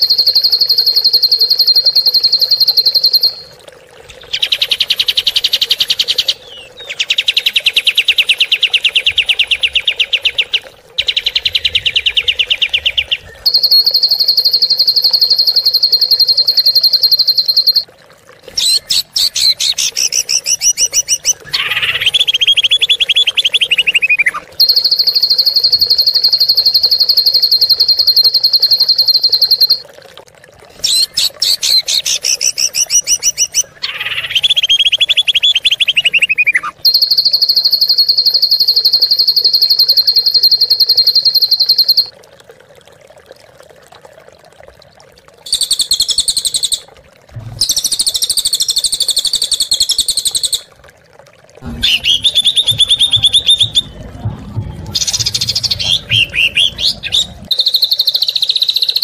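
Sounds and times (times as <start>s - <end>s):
songbird fast trills: 9.6s - 17.8s
buzzy stuttering bird calls: 55.0s - 59.0s.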